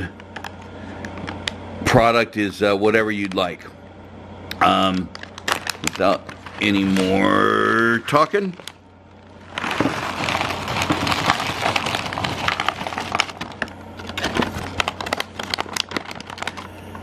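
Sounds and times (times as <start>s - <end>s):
rock chunks pouring into plastic pan: 9.4s - 16.7s.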